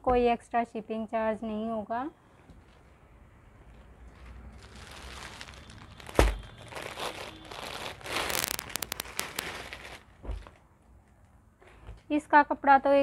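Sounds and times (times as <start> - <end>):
plastic packaging crinkling: 4.1 - 10.6.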